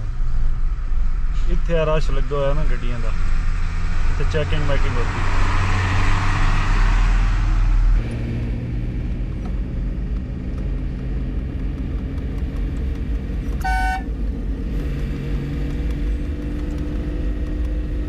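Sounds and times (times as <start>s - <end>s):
truck horn toot: 13.6s - 14.1s.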